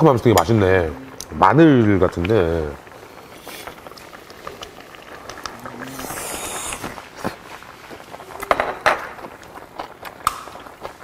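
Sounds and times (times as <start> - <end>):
person chewing: 5.4 - 7.0
person slurping from bowl: 5.5 - 7.5.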